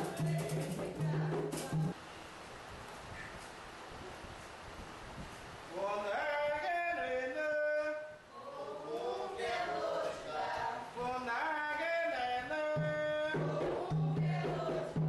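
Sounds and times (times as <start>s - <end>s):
person chanting unaccompanied: 0.0s - 2.0s, 5.7s - 15.0s.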